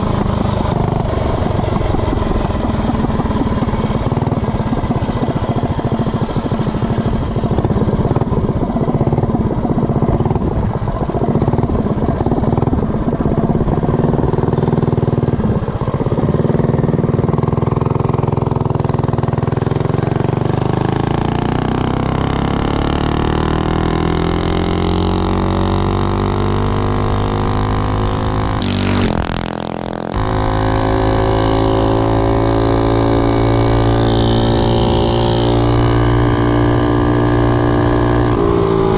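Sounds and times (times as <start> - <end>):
road and wind noise: 0.0 - 38.9
single-cylinder engine running wide open: 0.0 - 38.9.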